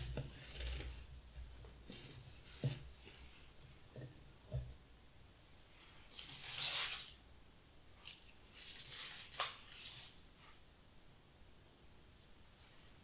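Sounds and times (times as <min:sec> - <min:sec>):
dried grass stems rustling: 0:06.1 - 0:07.2, 0:08.0 - 0:10.2.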